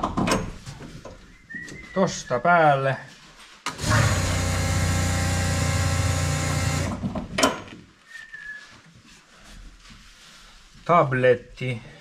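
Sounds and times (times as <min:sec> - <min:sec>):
small electric motor whirring: 0:03.7 - 0:07.0.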